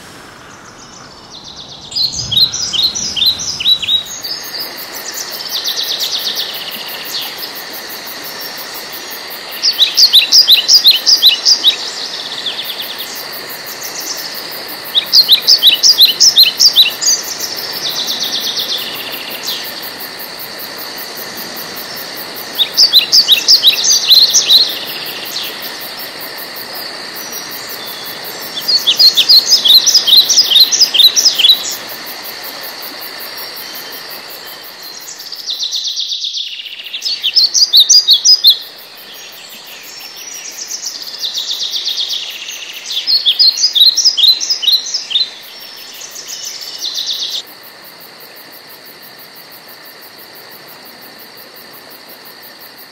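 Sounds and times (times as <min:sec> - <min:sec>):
steady high drone: 0:00.0 - 0:04.8
birds chirping: 0:00.0 - 0:05.8.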